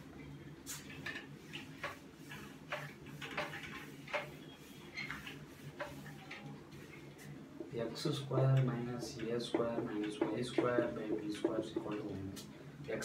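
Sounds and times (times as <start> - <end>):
eraser wiping whiteboard: 0.7 - 7.3.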